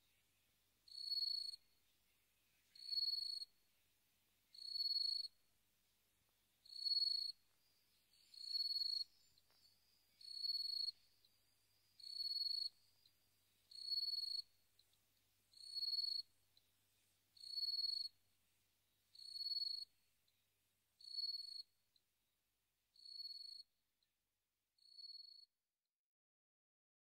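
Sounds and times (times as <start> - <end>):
cricket chirping: 0.9 - 1.9, 2.5 - 3.7, 4.5 - 5.4, 6.6 - 16.7, 17.4 - 18.2, 19.1 - 20.4, 21.0 - 21.8, 23.0 - 23.7, 24.8 - 25.5.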